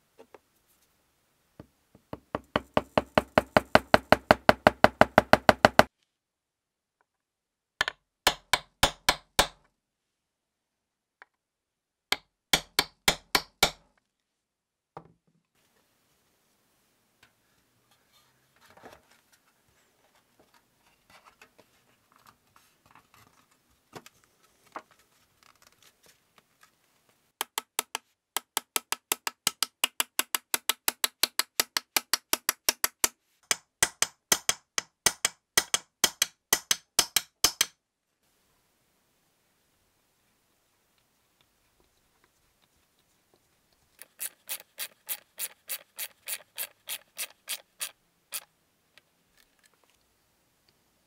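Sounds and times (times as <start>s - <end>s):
small hammer tapping a nail: 2.1s - 5.9s, 7.8s - 9.7s, 12.1s - 13.9s, 27.4s - 37.8s.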